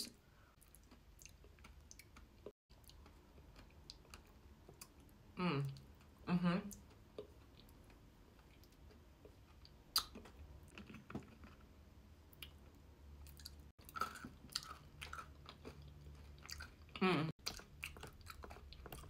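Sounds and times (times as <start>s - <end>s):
chewing and crunching candy: 0.5s - 11.7s, 12.4s - 19.0s.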